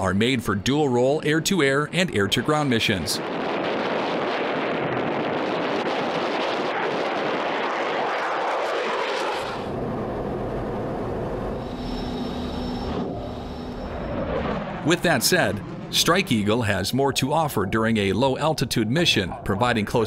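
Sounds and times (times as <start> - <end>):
cockpit engine and airflow rumble: 0.0 - 20.0
fighter jet passing: 0.0 - 20.0
faint steady whine: 9.6 - 20.0.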